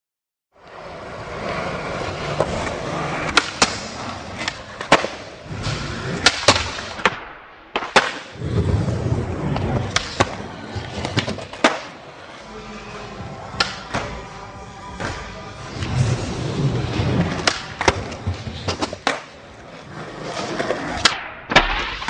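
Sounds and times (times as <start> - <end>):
skateboard wheels rolling on concrete: 0.6 - 7.1, 7.7 - 22.0
skateboard clacks landing tricks: 6.2 - 8.4, 11.2 - 12.0, 18.7 - 19.3.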